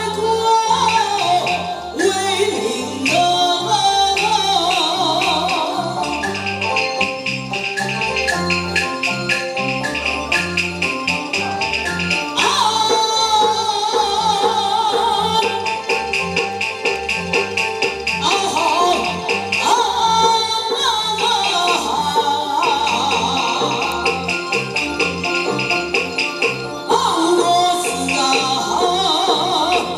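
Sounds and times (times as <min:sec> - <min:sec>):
melodic instruments: 0:00.0 - 0:29.9
steady percussion beat: 0:00.0 - 0:29.9
wavering sung line with vibrato: 0:00.0 - 0:29.9.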